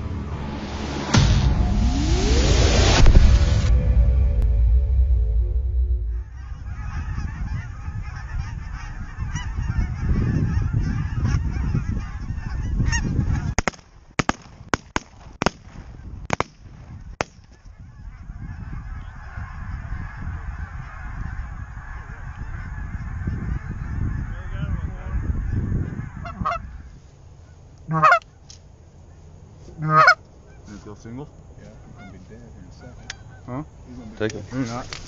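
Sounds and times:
geese honking: 0:06.1 - 0:13.7, 0:16.9 - 0:28.5, 0:29.1 - 0:35.0
shotgun shots: 0:13.5 - 0:17.6.

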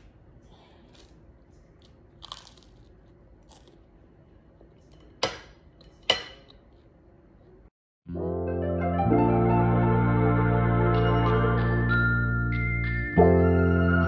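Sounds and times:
toast crunching: 0:00.8 - 0:05.1
music with bell-like tones: 0:08.6 - 0:14.0.

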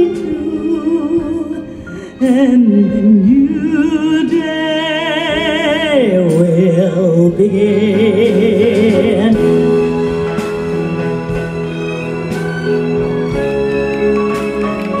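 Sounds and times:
woman singing with vibrato: 0:00.0 - 0:10.0
orchestra with strings: 0:00.0 - 0:15.0.

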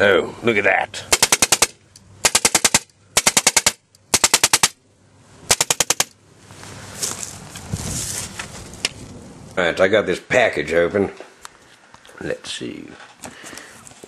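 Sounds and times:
bb machine gun firing bursts: 0:01.1 - 0:04.8, 0:05.5 - 0:06.1.

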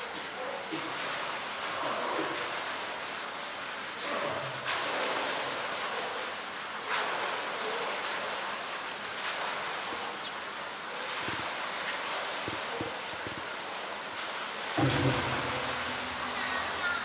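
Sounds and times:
cicadas buzzing: 0:02.2 - 0:17.0
water sloshing and splashing: 0:04.0 - 0:17.0.

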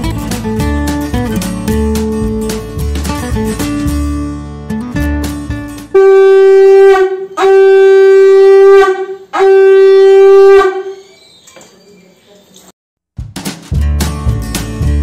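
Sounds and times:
background guitar music: 0:00.0 - 0:07.7, 0:13.2 - 0:15.0
conch shell blasts: 0:05.9 - 0:11.0.

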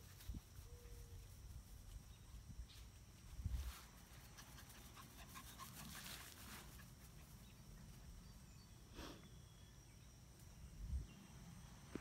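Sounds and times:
rustling in grass: 0:00.0 - 0:08.4.

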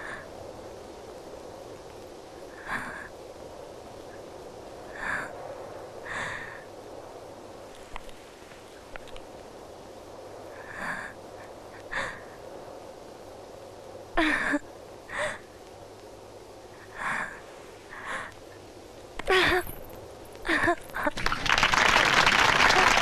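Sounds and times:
woman crying with gasping sobs: 0:14.2 - 0:15.4, 0:20.4 - 0:21.1.

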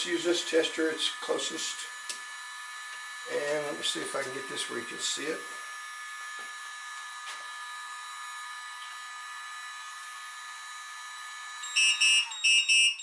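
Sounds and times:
electronic whine and fan hiss: 0:00.0 - 0:13.0
rapid pulsing alarm beep: 0:11.6 - 0:13.0.

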